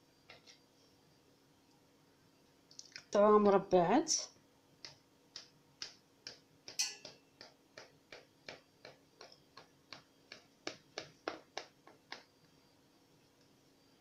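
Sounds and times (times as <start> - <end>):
knife tapping a metal tin: 6.7 - 8.2.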